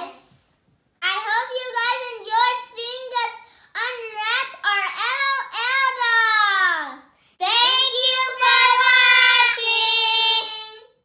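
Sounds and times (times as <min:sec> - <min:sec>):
girls singing: 0:07.6 - 0:10.8.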